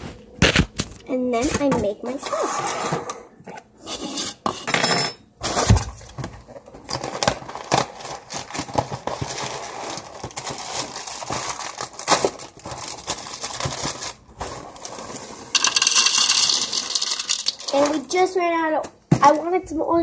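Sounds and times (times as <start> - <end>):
plastic bag crinkling: 6.9 - 18.2.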